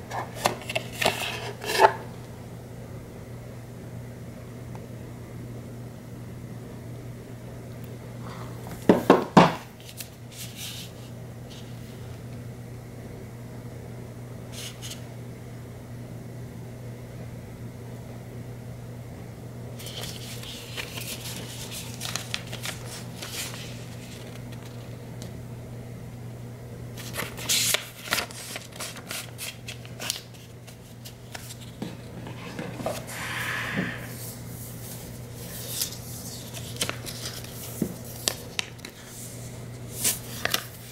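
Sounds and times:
paper and cardboard rustling: 0.1s - 2.0s, 19.8s - 25.0s, 27.0s - 33.3s, 34.1s - 40.9s.

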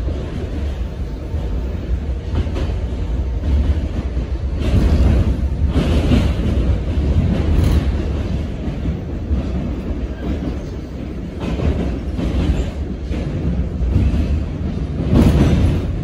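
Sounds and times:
subway wheels rumbling on rails: 0.0s - 16.0s.

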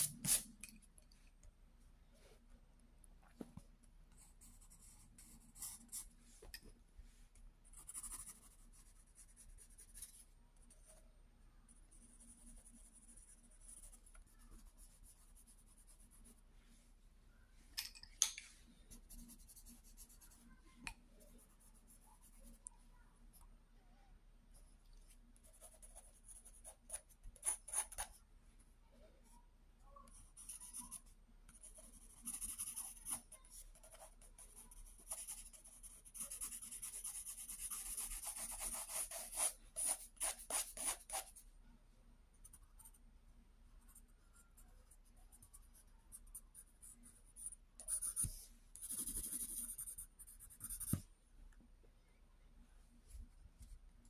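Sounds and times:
pencil scratching on paper: 4.2s - 6.1s, 7.7s - 11.0s, 25.4s - 28.2s, 30.1s - 41.4s, 43.9s - 51.0s.

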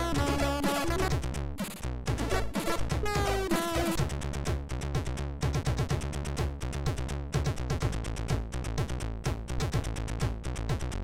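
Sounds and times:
chiptune music: 0.0s - 4.4s.

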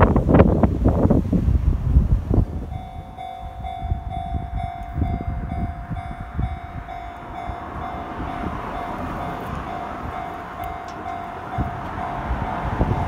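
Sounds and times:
low rumble: 1.5s - 13.0s
level crossing electronic bell: 2.6s - 13.0s.

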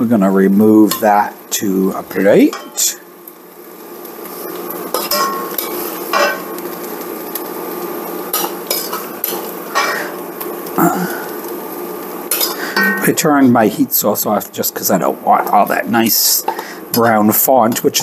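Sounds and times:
frying sizzle: 0.0s - 18.0s
utensil scraping and clinking on pan: 4.9s - 6.5s, 8.3s - 10.2s, 12.3s - 13.1s.

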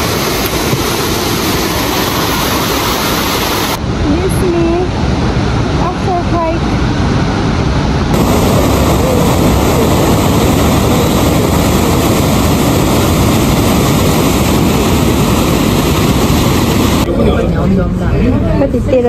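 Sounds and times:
river rushing over rapids: 0.0s - 4.0s, 6.7s - 17.2s.

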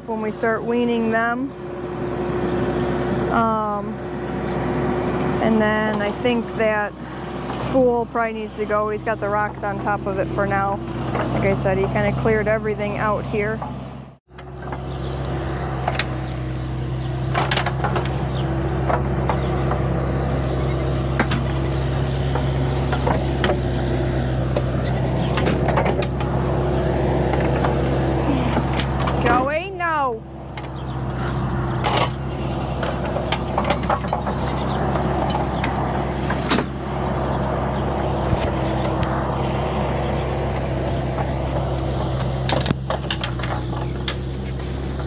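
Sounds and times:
skid steer engine running: 0.0s - 45.0s
sharp clanks and knocks: 9.4s - 12.3s, 13.0s - 15.0s, 15.8s - 29.6s, 30.5s - 39.2s, 40.5s - 45.0s
sharp knocks and clatters: 17.2s - 19.9s, 24.5s - 26.4s, 30.6s - 36.7s, 41.1s - 45.0s.

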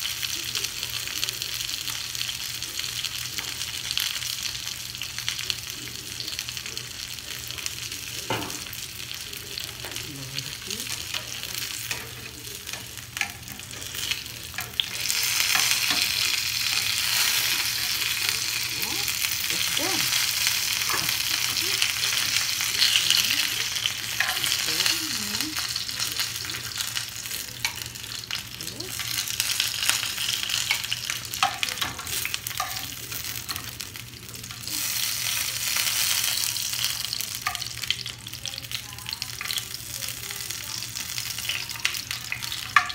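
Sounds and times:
spring rolls sizzling in oil: 0.0s - 42.9s
metal tongs clicking on pan: 10.9s - 18.6s, 20.1s - 33.8s.

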